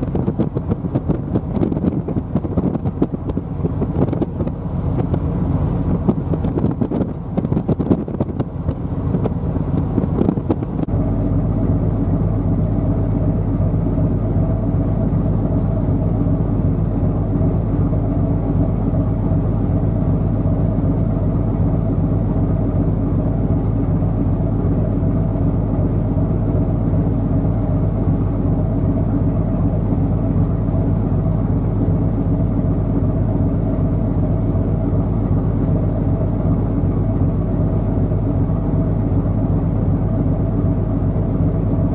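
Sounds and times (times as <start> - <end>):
wind buffeting microphone: 0.0 - 10.9
ship diesel engine drone: 0.0 - 41.9.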